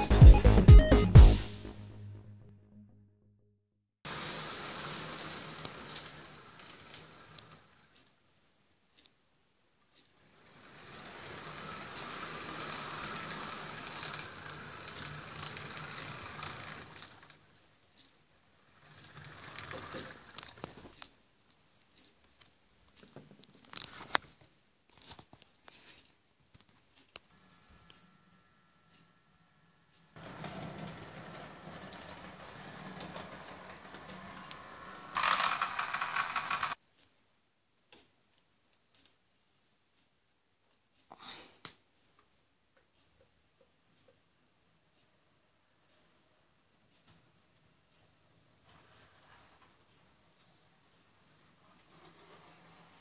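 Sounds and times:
model train wheels whirring: 0:04.1 - 0:08.1, 0:10.2 - 0:20.8, 0:27.3 - 0:36.8, 0:48.0 - 0:50.4, 0:51.1 - 0:53.0.

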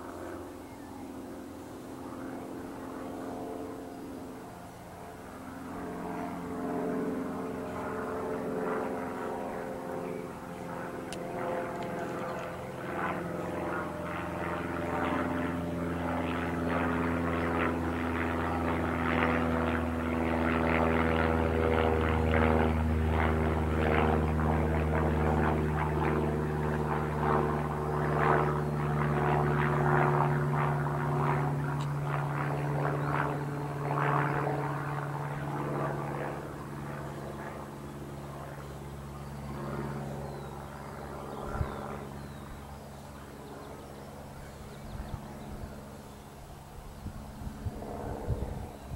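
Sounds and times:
propeller aircraft flying over: 0:00.0 - 0:48.9.

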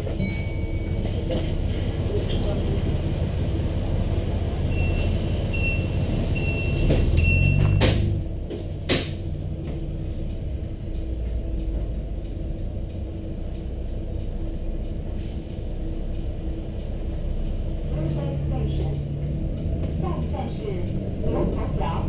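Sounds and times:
diesel bus engine running: 0:00.0 - 0:22.0
bus doors knocking shut: 0:06.7 - 0:09.2.

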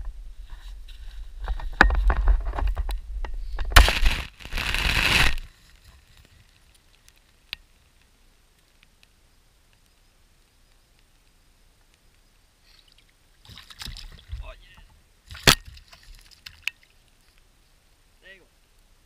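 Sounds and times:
crunching and scraping on gravel: 0:00.4 - 0:07.5.

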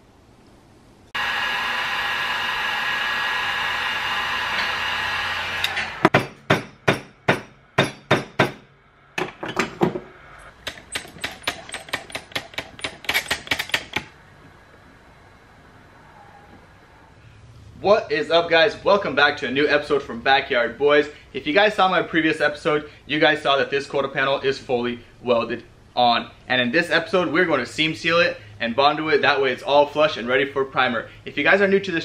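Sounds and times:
power tool running: 0:01.2 - 0:06.1
hammer striking metal: 0:05.7 - 0:09.8.

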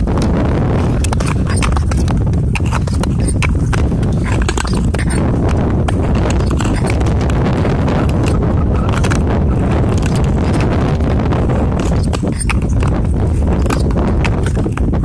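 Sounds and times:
steady low rumble: 0:00.0 - 0:15.0
ice skate blades scraping ice: 0:00.8 - 0:07.2, 0:09.9 - 0:15.0.

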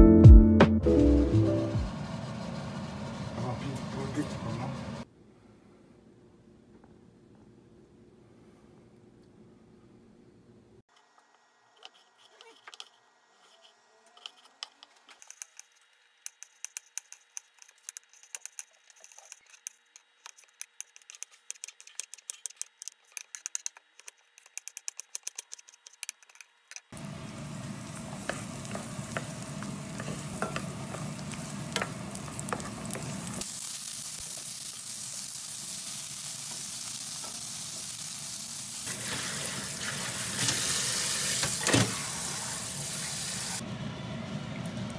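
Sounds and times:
food sizzling: 0:26.9 - 0:43.6
tap water running: 0:38.9 - 0:43.6.

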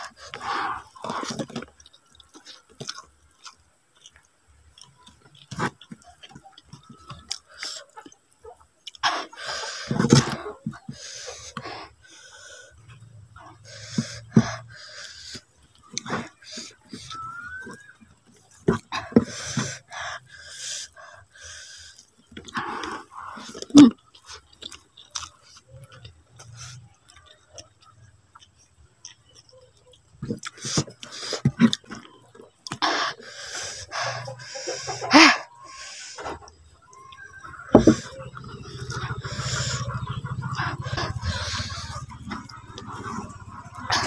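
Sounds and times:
chewing with wet smacks: 0:00.0 - 0:44.0.

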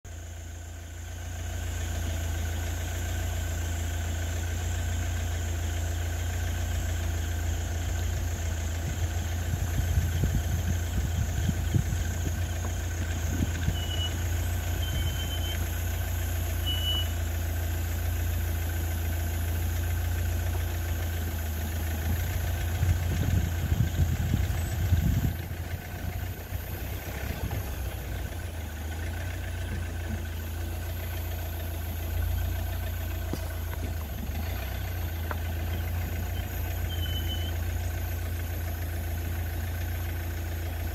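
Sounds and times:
engine idling hum: 0:00.0 - 0:40.9
low rumbling: 0:07.7 - 0:16.7, 0:20.2 - 0:40.0
short high chirps: 0:36.4 - 0:37.6.

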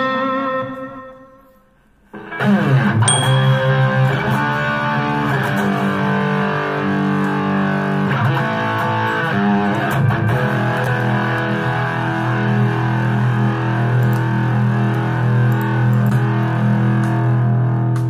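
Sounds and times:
distorted electric guitar: 0:00.0 - 0:18.0
backing track: 0:03.0 - 0:08.7.

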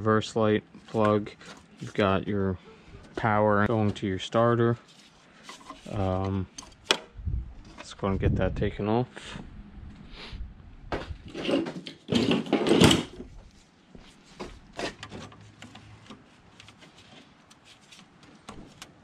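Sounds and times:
metal tools clattering in bin: 0:11.3 - 0:13.2.

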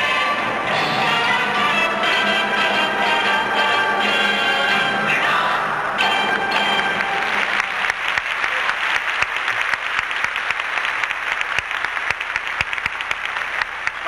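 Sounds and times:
audience applauding: 0:06.1 - 0:14.0.

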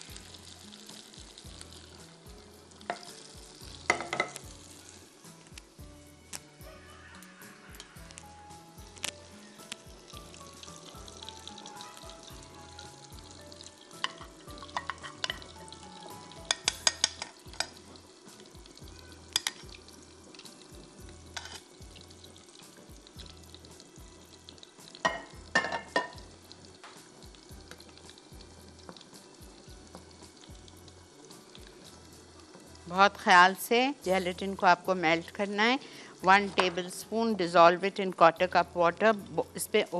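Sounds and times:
butter sizzling in pan: 0:00.0 - 0:39.9
faint background music: 0:00.0 - 0:39.9
spoon clinking against glass bowl: 0:16.5 - 0:17.8.

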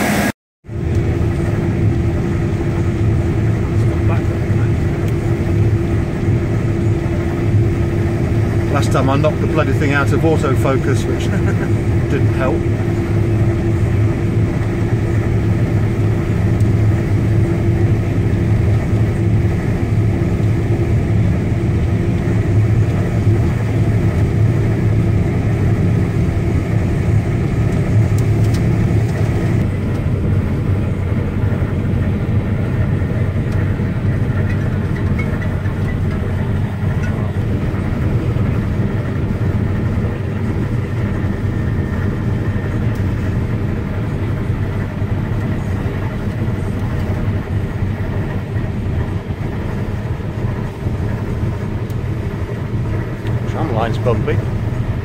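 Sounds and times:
combine harvester engine drone: 0:00.0 - 0:55.0.

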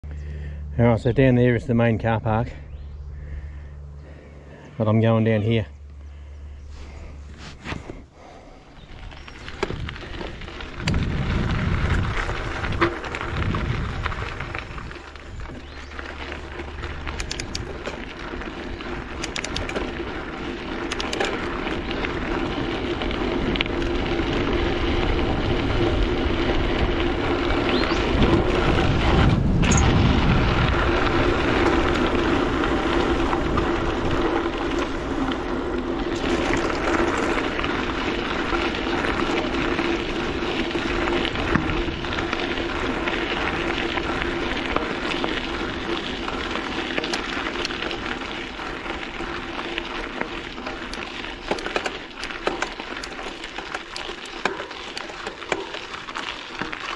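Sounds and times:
bike tyres rumbling on dirt: 0:01.6 - 0:56.9.

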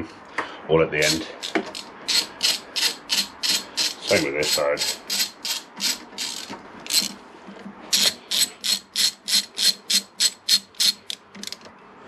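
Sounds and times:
socket ratchet clicking: 0:01.1 - 0:07.1, 0:07.9 - 0:11.6.

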